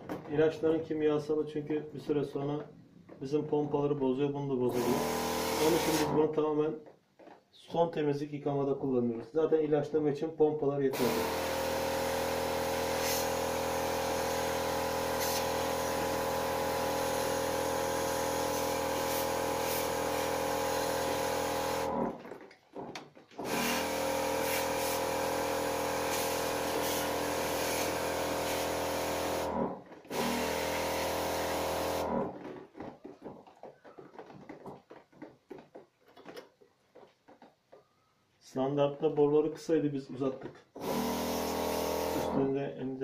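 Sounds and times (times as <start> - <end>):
electric spray pump humming: 4.7 - 6.2, 11.0 - 22.2, 23.4 - 32.5, 40.8 - 42.4
water spraying: 4.8 - 6.1, 11.0 - 21.9, 23.4 - 29.5, 30.1 - 32.1, 40.8 - 42.3.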